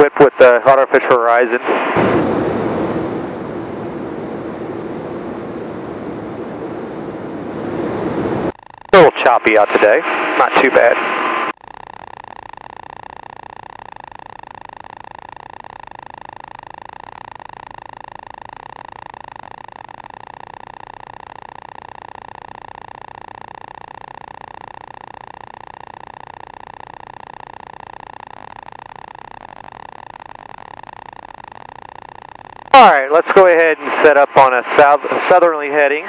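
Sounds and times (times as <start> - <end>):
airplane engine and propeller droning: 1.7 - 8.5, 33.0 - 36.0.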